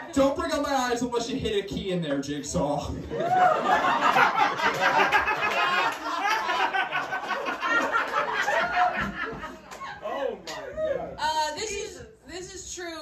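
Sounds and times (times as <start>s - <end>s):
crowd chattering: 0.0s - 12.7s
audience laughing: 3.0s - 10.0s.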